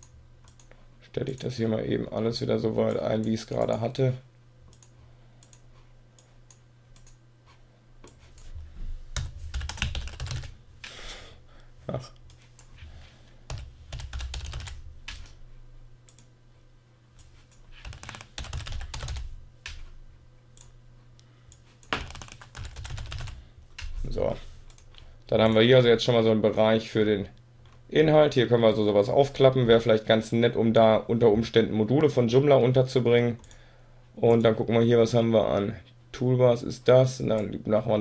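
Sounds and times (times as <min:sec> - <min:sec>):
typing on keyboard: 0:09.2 - 0:10.5, 0:13.5 - 0:15.4, 0:17.8 - 0:19.8, 0:21.8 - 0:23.4.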